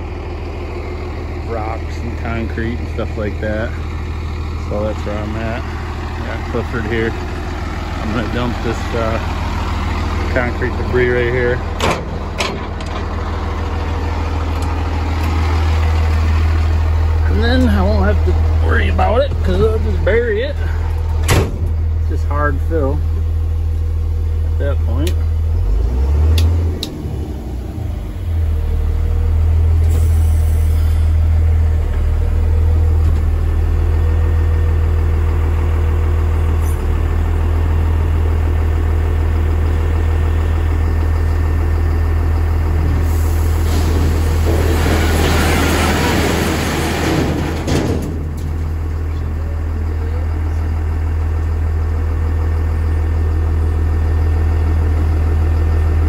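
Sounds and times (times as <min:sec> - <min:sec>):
diesel engine running: 0:00.0 - 0:56.0
broken concrete sliding out: 0:43.5 - 0:49.0.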